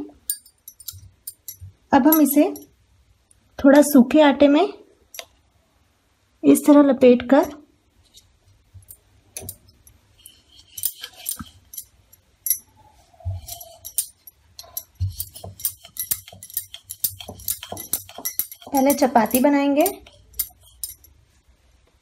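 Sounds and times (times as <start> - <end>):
bangles jingling: 0.2 - 2.7, 8.8 - 21.2.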